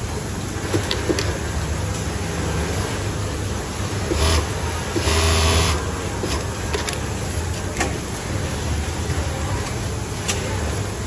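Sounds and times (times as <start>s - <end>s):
sewing machine stitching: 4.1s - 6.4s.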